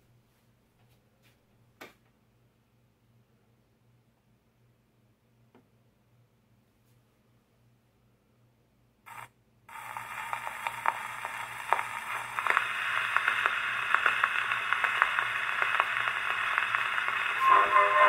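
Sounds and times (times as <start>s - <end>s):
record surface hiss and crackles: 0.0s - 18.0s
phonograph needle scratch: 9.1s - 18.0s.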